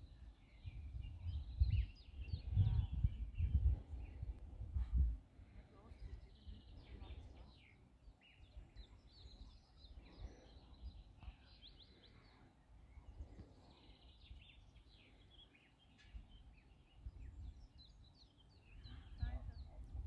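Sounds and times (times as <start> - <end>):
wind rumble on microphone: 0.0 - 7.7, 16.1 - 18.0, 18.7 - 20.0
faint songbirds chirping: 0.0 - 20.0.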